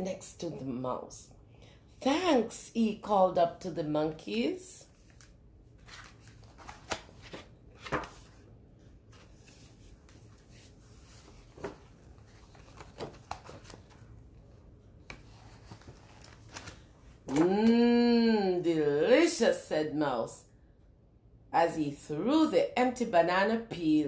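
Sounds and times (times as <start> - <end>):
woman speaking: 0.0 - 1.4, 2.0 - 4.9, 17.3 - 20.5, 21.5 - 24.0
book pages rustling: 4.9 - 17.4.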